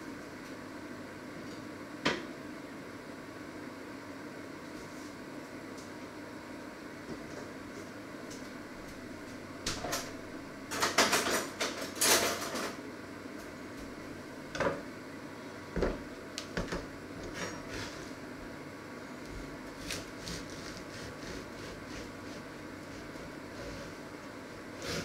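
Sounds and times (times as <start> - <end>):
kitchen clatter and knocks: 10.7 - 12.8.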